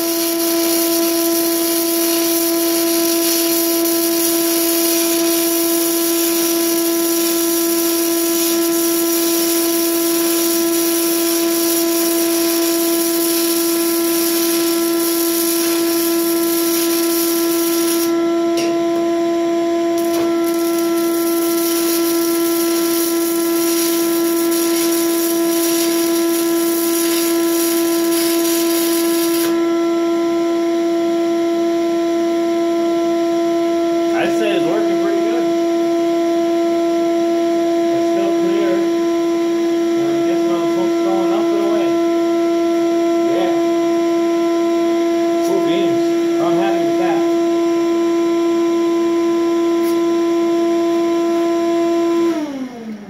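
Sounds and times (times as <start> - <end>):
welding arc crackling hiss: 0.0 - 18.2, 20.0 - 29.6
shop vacuum whining: 0.0 - 53.0.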